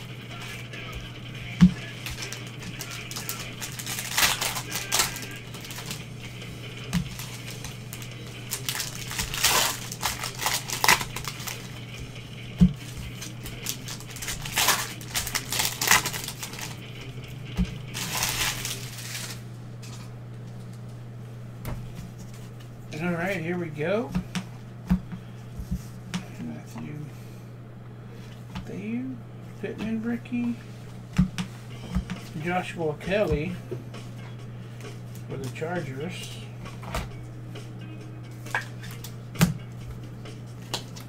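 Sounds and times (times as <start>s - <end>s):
steady low hum: 0.0s - 41.0s
foil wrappers crinkling and tearing: 1.8s - 6.2s, 6.8s - 12.2s, 12.8s - 16.8s, 17.9s - 20.0s.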